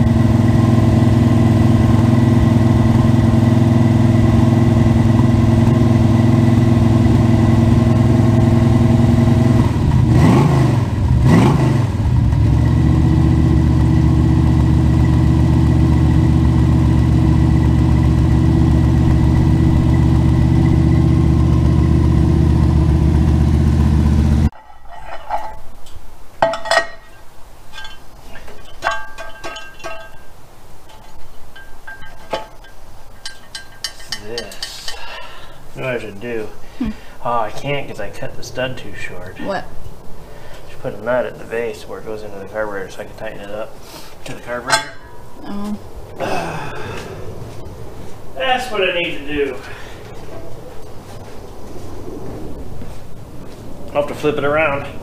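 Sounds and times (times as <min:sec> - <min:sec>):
car engine idling and revving: 0:00.0 - 0:24.6
light metallic clinks: 0:26.4 - 0:35.0.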